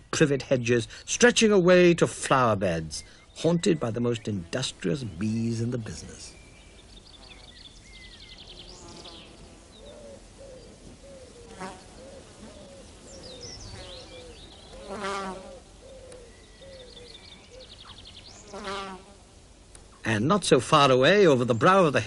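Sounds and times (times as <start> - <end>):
birds chirping: 0.0 - 22.0
bumblebees buzzing: 4.0 - 19.4.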